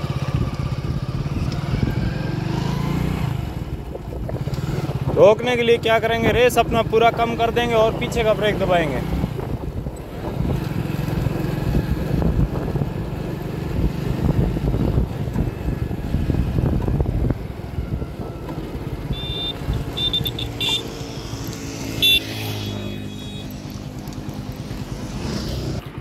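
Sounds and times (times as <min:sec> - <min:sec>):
motorcycle engine running: 0:00.0 - 0:26.0
wind noise on microphone: 0:00.0 - 0:26.0.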